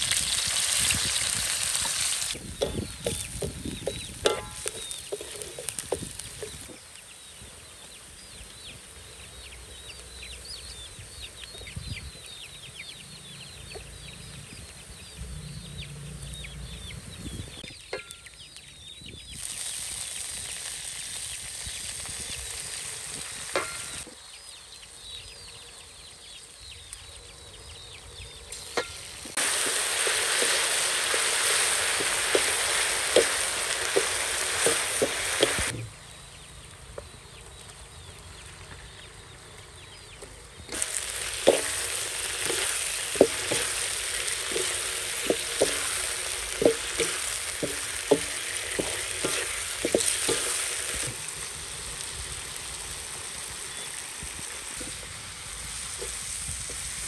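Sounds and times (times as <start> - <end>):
food sizzling in hot oil: 0.0 - 11.2, 17.4 - 24.2, 28.4 - 35.8, 40.7 - 57.0.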